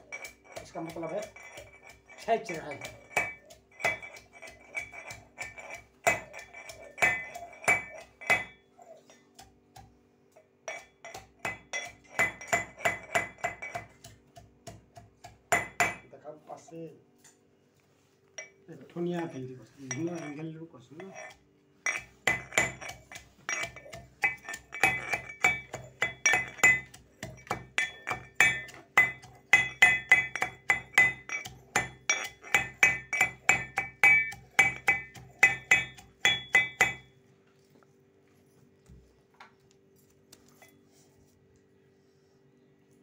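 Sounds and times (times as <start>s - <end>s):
pestle pounding in metal mortar: 0.0s - 8.6s, 9.3s - 16.2s, 19.0s - 37.1s.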